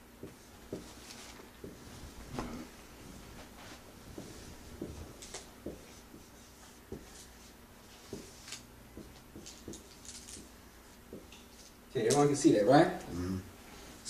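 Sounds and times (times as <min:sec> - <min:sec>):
marker writing on a whiteboard: 0:04.2 - 0:11.3.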